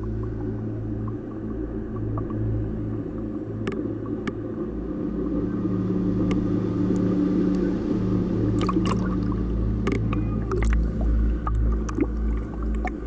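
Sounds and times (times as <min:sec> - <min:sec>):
sharp clicks of water: 0:00.0 - 0:04.5, 0:08.6 - 0:13.0
wave wash: 0:00.0 - 0:13.0.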